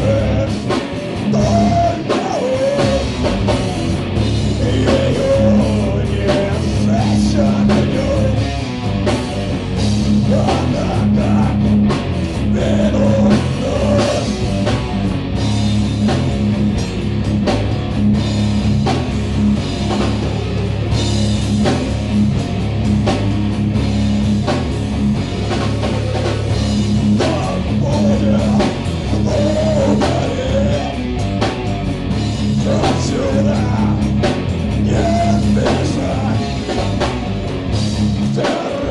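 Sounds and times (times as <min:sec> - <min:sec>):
person singing into a microphone: 0:00.0 - 0:00.7, 0:01.3 - 0:03.2, 0:04.6 - 0:08.5, 0:10.2 - 0:11.7, 0:12.5 - 0:14.5, 0:27.2 - 0:31.0, 0:32.6 - 0:34.1, 0:34.8 - 0:36.5, 0:38.3 - 0:38.9
distorted electric guitars: 0:00.0 - 0:38.9
drum kit: 0:00.0 - 0:38.9.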